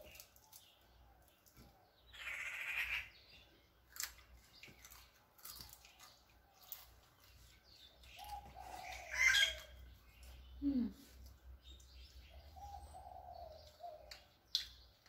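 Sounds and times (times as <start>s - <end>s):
crunching and chewing fried fish: 0.0s - 1.8s, 3.5s - 10.5s, 13.6s - 15.0s
birds chirping: 0.0s - 15.0s.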